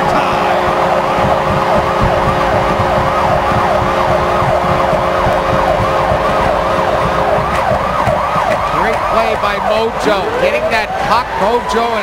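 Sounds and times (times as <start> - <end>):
goal horn: 0.0 - 7.7
crowd cheering: 0.0 - 12.0
siren wailing: 0.0 - 12.0.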